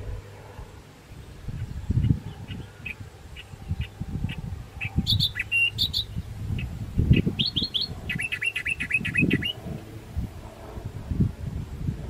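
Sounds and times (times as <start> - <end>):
wind rumble on microphone: 0.0 - 12.0
small birds chirping: 1.1 - 9.8.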